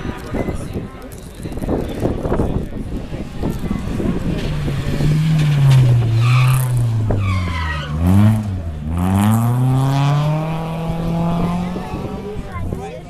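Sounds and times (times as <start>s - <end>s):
rally car engine revving: 2.9s - 12.8s.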